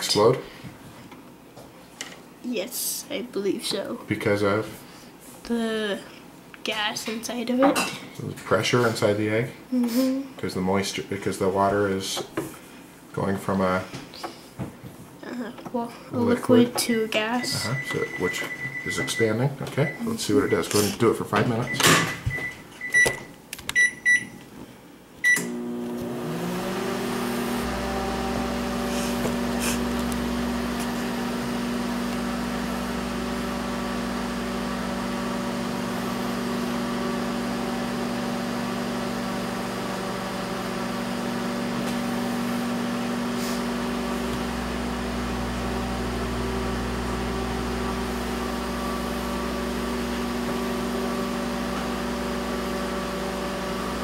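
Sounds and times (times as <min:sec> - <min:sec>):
microwave oven humming: 0:16.2 - 0:20.8, 0:25.2 - 0:54.0
microwave keypad beeps: 0:17.4 - 0:20.7, 0:21.6 - 0:24.4.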